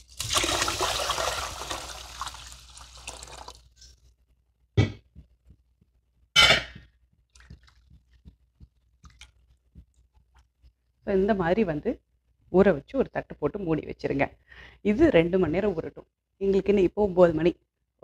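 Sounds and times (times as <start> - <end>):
water pouring into vessel: 0.0 - 3.8.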